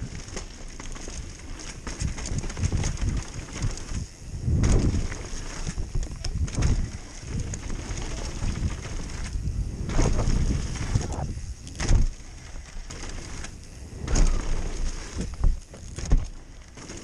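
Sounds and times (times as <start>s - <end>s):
bike clicks and clatters: 0.0s - 17.0s
bike tyres rumbling on dirt: 0.0s - 17.0s
wind buffeting microphone: 1.9s - 12.4s.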